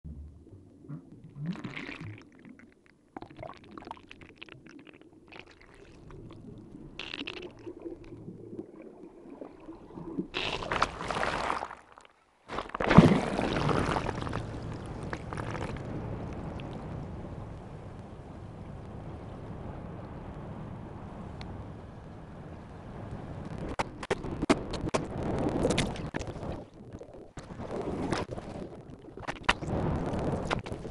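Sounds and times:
crackles: 0:00.0 - 0:30.9
underwater gurgling water: 0:00.1 - 0:18.0, 0:25.1 - 0:30.9.

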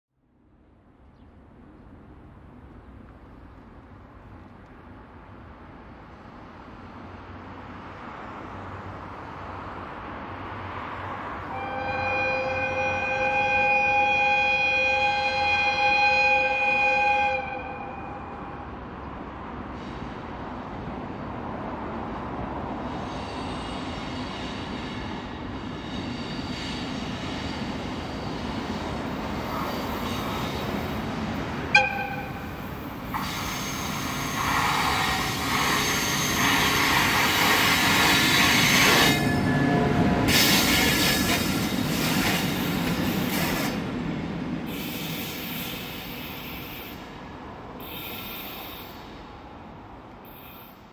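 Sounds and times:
wheels rumbling on rails: 0:00.7 - 0:50.9
locomotive horn blast: 0:11.5 - 0:18.6, 0:31.7 - 0:32.7
wheel squeal: 0:33.2 - 0:37.5.

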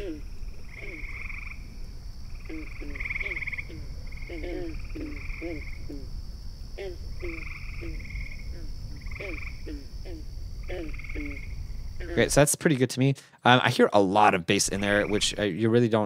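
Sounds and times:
frogs croaking: 0:00.0 - 0:12.4, 0:14.7 - 0:15.5
steady high hum: 0:00.0 - 0:12.4.

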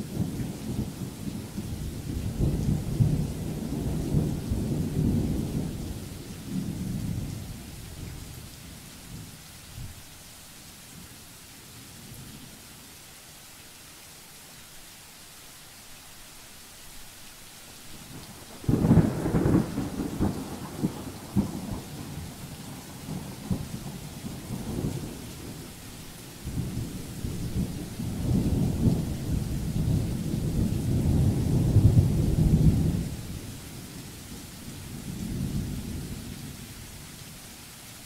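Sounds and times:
steady hiss: 0:00.0 - 0:38.0
rolling thunder: 0:00.2 - 0:08.3, 0:18.2 - 0:25.8, 0:26.4 - 0:33.5.

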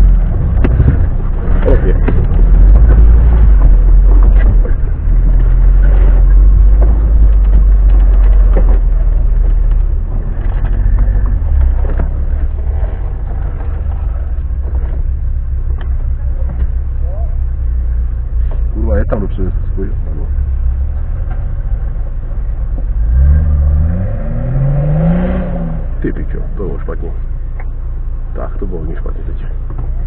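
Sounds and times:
knocks and rattles from bumps: 0:00.0 - 0:16.9
vehicle engine at low revs: 0:00.0 - 0:30.0.

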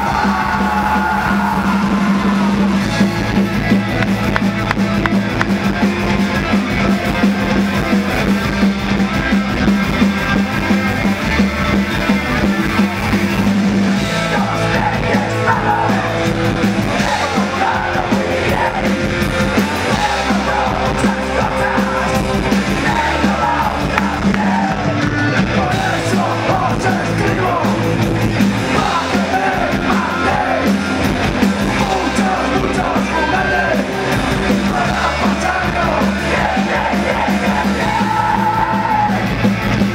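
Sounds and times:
shouted vocals: 0:00.0 - 0:02.9, 0:14.0 - 0:27.9, 0:28.6 - 0:39.4
punk rock band playing live: 0:00.0 - 0:39.9.

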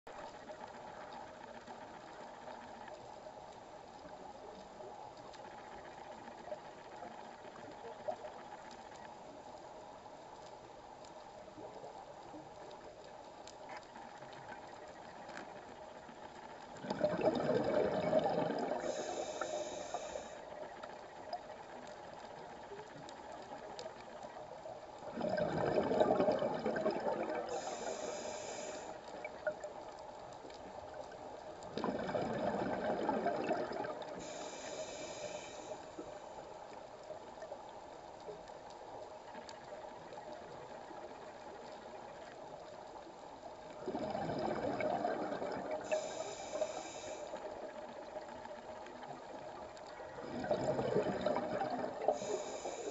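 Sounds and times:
faint underwater hiss: 0:00.1 - 0:52.9
exhaled bubbles rushing: 0:16.8 - 0:19.1, 0:25.1 - 0:27.7, 0:31.7 - 0:34.2, 0:43.8 - 0:46.0, 0:50.2 - 0:52.3
regulator inhalation hiss: 0:18.8 - 0:20.4, 0:27.5 - 0:29.1, 0:34.2 - 0:36.2, 0:45.8 - 0:47.4, 0:52.1 - 0:52.9.

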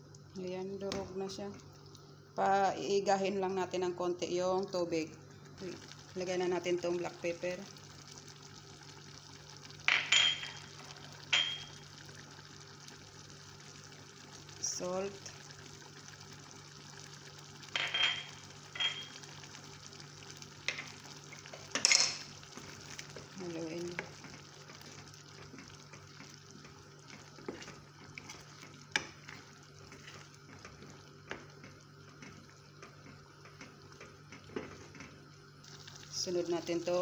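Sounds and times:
simmering sizzle: 0:00.0 - 0:37.0
wooden spoon stirring mash: 0:22.5 - 0:35.2.

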